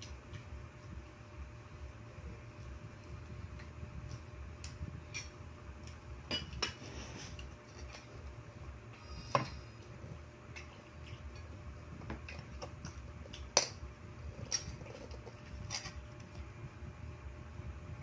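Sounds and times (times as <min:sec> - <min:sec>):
dishes and cutlery clinking: 0:06.3 - 0:08.1.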